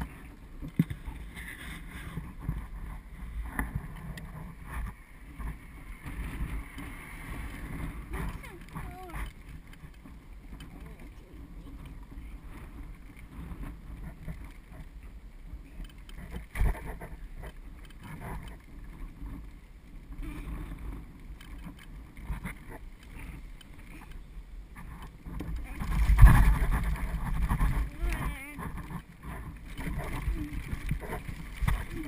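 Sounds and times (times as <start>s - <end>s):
bicycle trailer rumbling and rattling: 0.0s - 32.0s.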